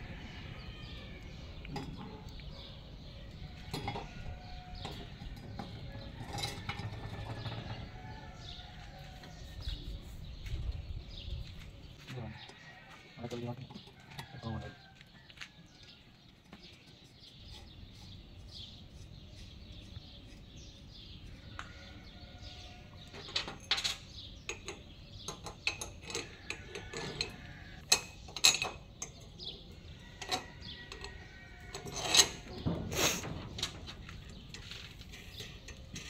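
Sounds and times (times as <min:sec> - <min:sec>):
metal clinks and knocks: 0:03.6 - 0:08.6, 0:23.2 - 0:29.5.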